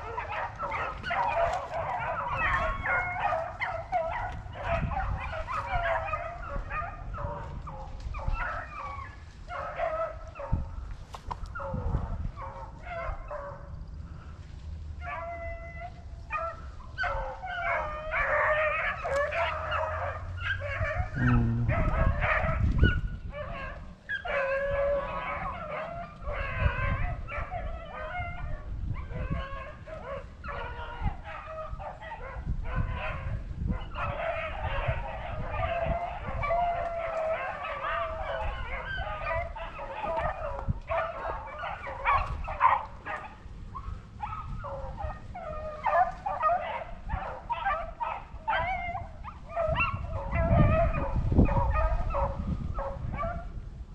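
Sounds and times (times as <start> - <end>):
pack of hounds baying: 0.0 - 14.3, 14.9 - 53.6.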